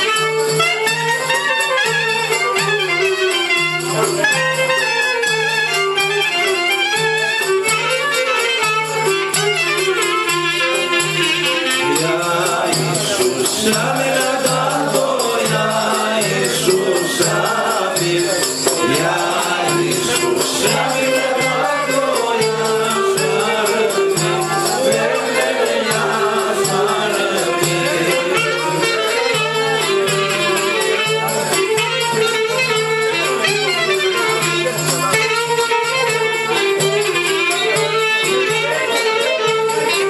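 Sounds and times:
clarinet melody: 0.0s - 14.2s, 18.6s - 40.0s
frame drum beat: 0.2s - 40.0s
man singing into microphone: 11.7s - 31.6s.

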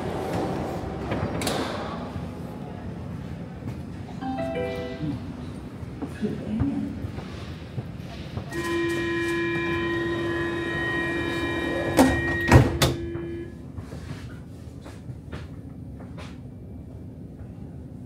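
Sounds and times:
train low hum: 0.0s - 18.0s
door-closing warning tone: 11.6s - 13.6s.

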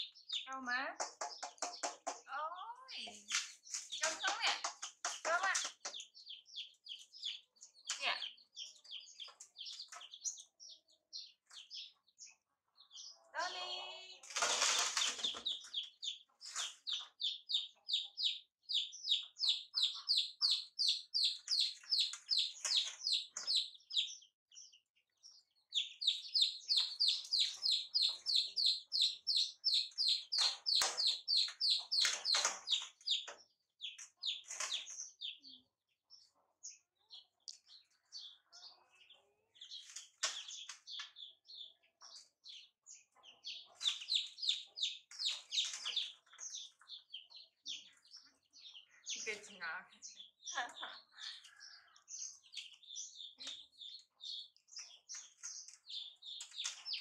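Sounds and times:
chicks peeping: 0.0s - 57.0s.

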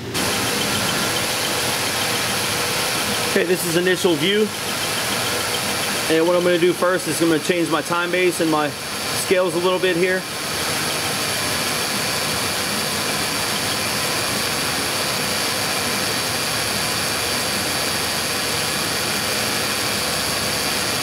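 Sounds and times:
car engine idling: 0.0s - 7.9s.

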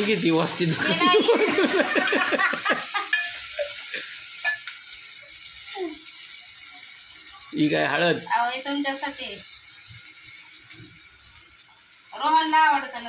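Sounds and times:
food sizzling in oil: 0.0s - 13.0s
spoon stirring in a pot: 3.0s - 3.8s.

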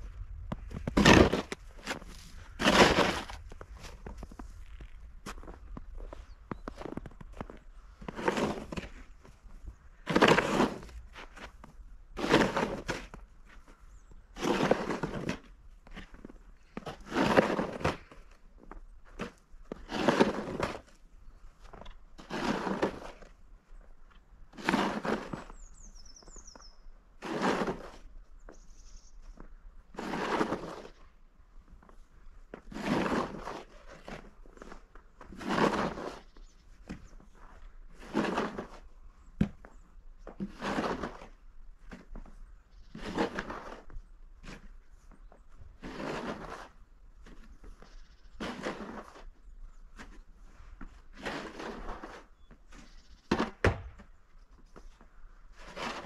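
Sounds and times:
snow shovel scraping snow: 0.8s - 4.3s, 6.8s - 9.1s, 9.9s - 11.5s, 12.2s - 13.2s, 14.4s - 18.3s, 19.2s - 21.0s, 21.8s - 23.4s, 24.5s - 25.7s, 27.2s - 28.1s, 29.9s - 31.0s, 32.6s - 36.4s, 37.4s - 38.9s, 40.4s - 42.1s, 42.8s - 44.7s, 45.6s - 47.6s, 48.3s - 49.4s, 50.0s - 53.9s, 55.5s - 56.0s.

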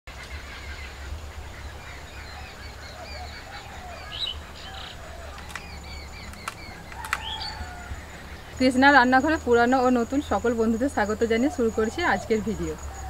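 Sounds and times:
birds chirping and calling: 0.2s - 13.0s
sharp ticks: 5.3s - 7.6s.

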